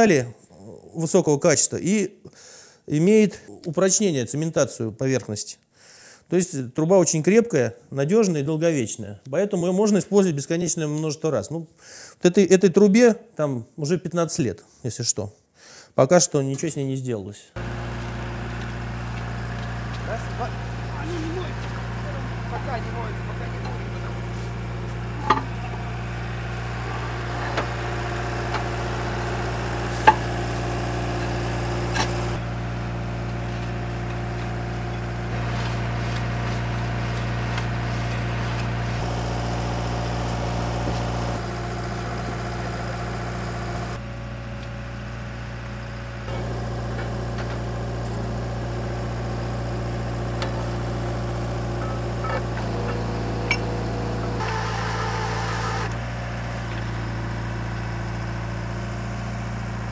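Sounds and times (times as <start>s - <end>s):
drilling rig engine running: 17.6s - 59.9s.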